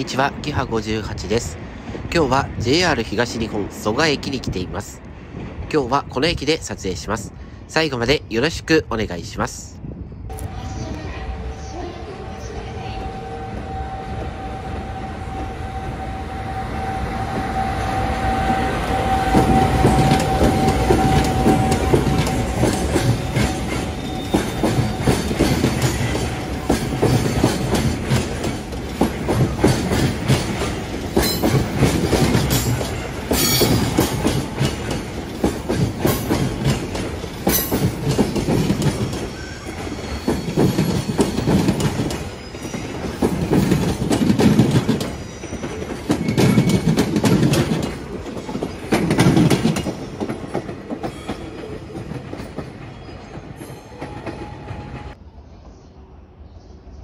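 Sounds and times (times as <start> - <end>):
freight train rumble: 0.0 - 57.0
wheels clacking over rail joints: 16.8 - 55.1
metallic squeals and clanks: 44.7 - 47.7.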